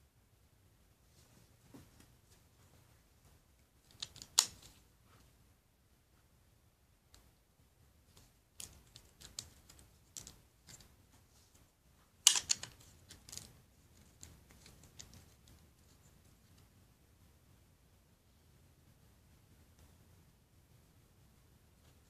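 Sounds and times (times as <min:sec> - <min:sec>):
plastic bricks clicking: 0:03.8 - 0:04.8, 0:08.2 - 0:10.8, 0:12.2 - 0:15.5.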